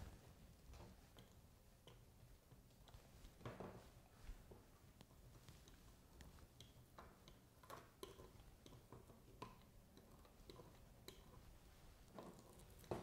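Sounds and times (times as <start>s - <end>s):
small plastic ticks and clicks: 5.0s - 11.4s.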